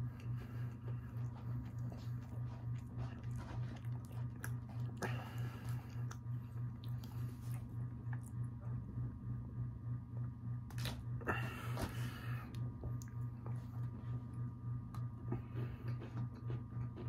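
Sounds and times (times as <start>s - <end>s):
chewing crumbly cookie: 0.0s - 8.8s, 12.8s - 17.0s
pulsing low hum: 0.0s - 17.0s.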